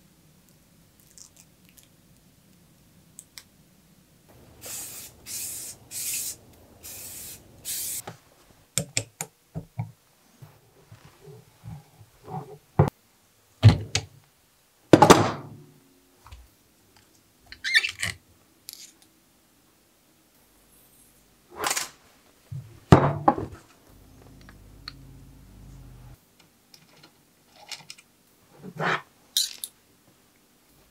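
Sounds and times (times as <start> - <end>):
short hissing bursts: 4.3 - 8.1.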